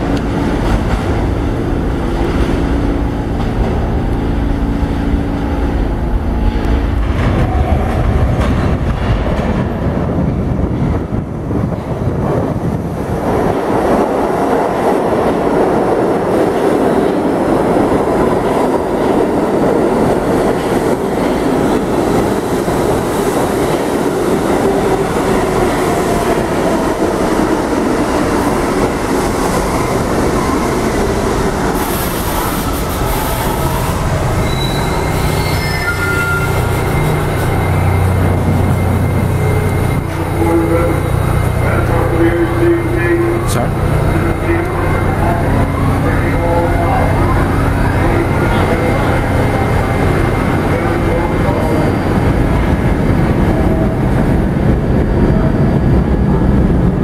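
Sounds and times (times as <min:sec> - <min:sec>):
subway train wheels rumbling: 0:00.0 - 0:57.0
train brakes hissing: 0:31.8 - 0:41.0.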